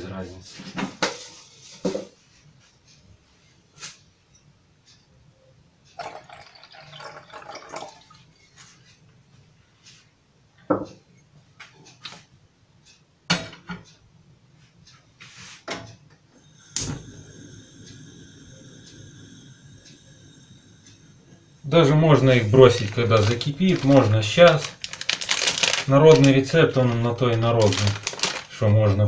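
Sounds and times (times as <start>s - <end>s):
water pouring into pot: 6.0s - 8.3s, 21.6s - 26.3s
faint steady whines: 16.1s - 25.0s
gas burner rushing: 16.4s - 24.6s.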